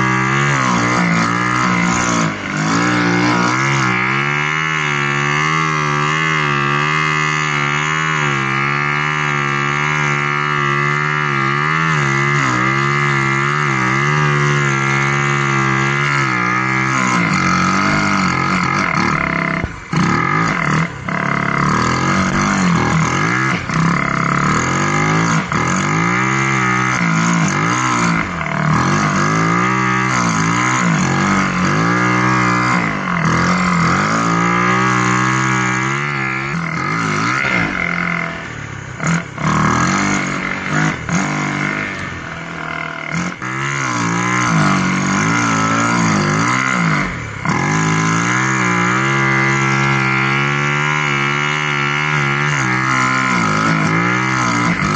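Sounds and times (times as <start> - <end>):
snow bike engine revving: 0.0 - 54.9.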